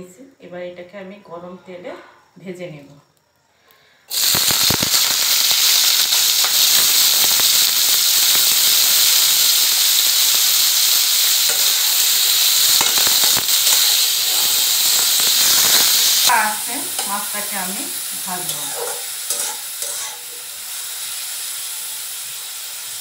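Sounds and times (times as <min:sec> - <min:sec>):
fish sizzling in hot oil: 0:04.1 - 0:23.0
metal spatula stirring: 0:18.5 - 0:20.4.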